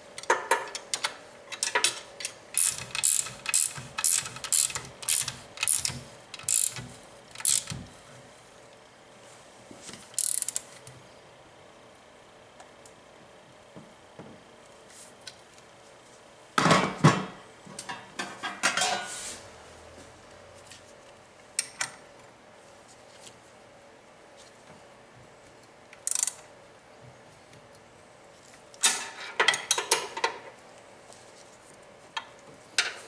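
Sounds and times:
metal tools clicking and clanking: 0:01.5 - 0:07.8.

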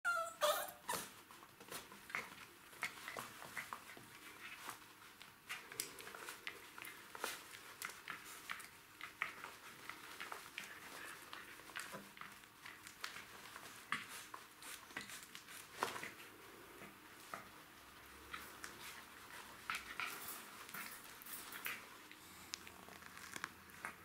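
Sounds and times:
puppy squealing: 0:00.0 - 0:01.1
scuffling and chewing clicks: 0:01.1 - 0:24.0.

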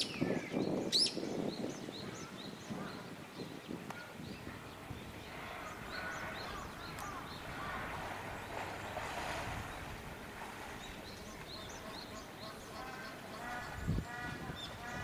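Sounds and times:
small birds chirping: 0:00.0 - 0:15.0
faint voices: 0:03.9 - 0:15.0.

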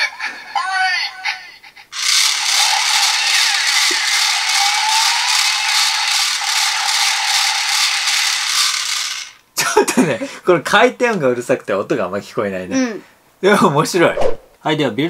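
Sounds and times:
toy drill rattling whir: 0:01.9 - 0:09.4
toy electronic sound effects: 0:01.9 - 0:09.4.

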